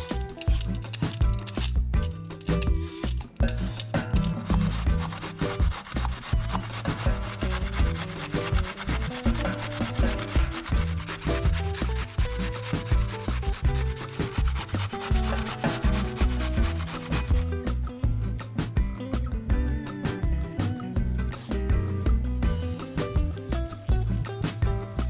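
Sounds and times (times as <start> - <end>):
zucchini scraping on grater: 4.2 - 17.5.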